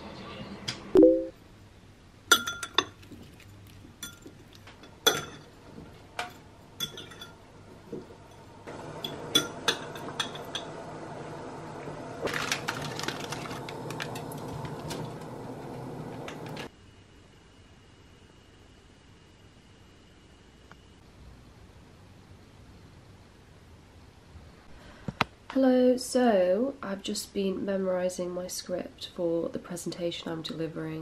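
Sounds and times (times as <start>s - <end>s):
cutlery clinking on ceramic bowl: 2.3s - 3.4s, 4.0s - 5.5s, 6.2s - 7.4s, 9.0s - 10.7s
kitchen hum: 2.3s - 16.7s.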